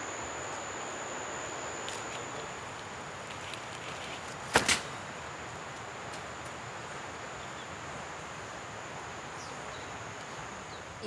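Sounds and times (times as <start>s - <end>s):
thin high insect note: 0.0s - 3.9s
steady forest hiss: 0.0s - 11.0s.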